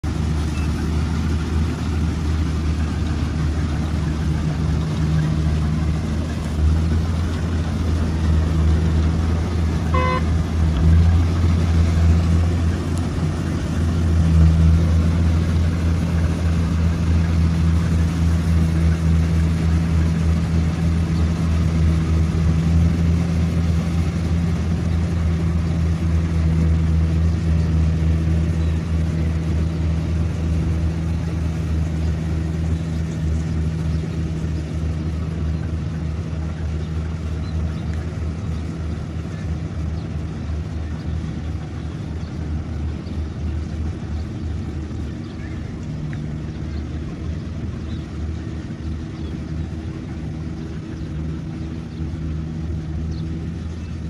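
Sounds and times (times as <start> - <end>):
harvester engine humming: 0.0 - 54.0
short beep: 9.9 - 10.3.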